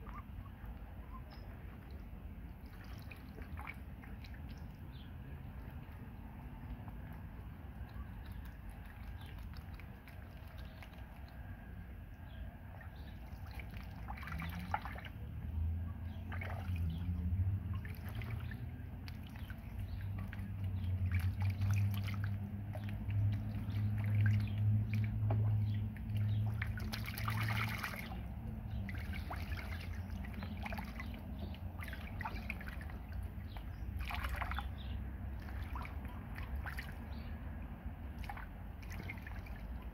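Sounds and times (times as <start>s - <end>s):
ducklings splashing in water: 0.0s - 39.9s
low steady hum: 0.0s - 39.9s.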